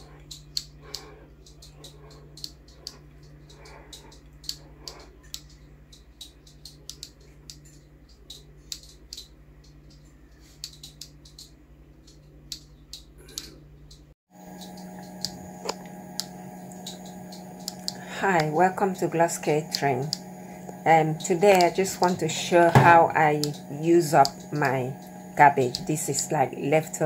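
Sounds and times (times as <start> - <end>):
low electrical hum: 0.0 - 27.0
faint irregular clicks: 0.2 - 18.6.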